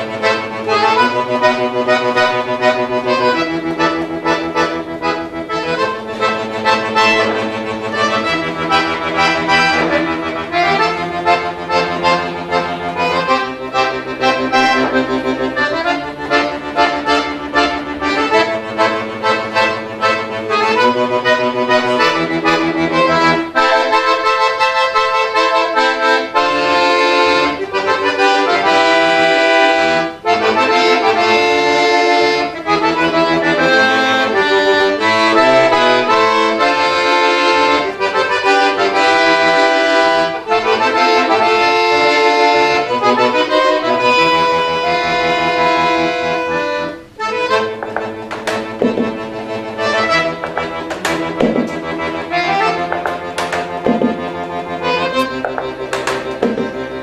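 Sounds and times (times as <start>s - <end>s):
fast piano accordion music: 0.0s - 57.0s
sharp percussive hits: 47.8s - 49.2s, 50.4s - 52.1s, 52.7s - 54.4s, 55.2s - 56.9s.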